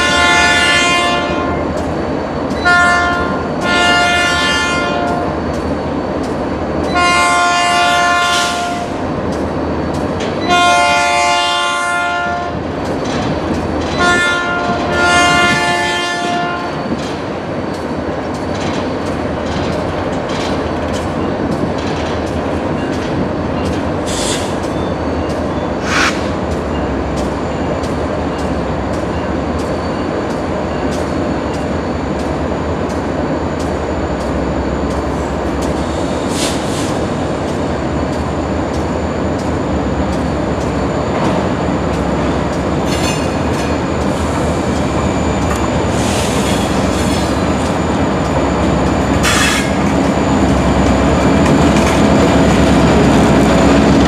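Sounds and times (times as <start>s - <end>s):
train air horn blasts: 0.0s - 1.6s, 2.6s - 5.3s, 6.9s - 9.0s, 10.4s - 12.6s, 14.0s - 16.8s, 49.2s - 49.8s
train rumbling past: 0.0s - 54.0s.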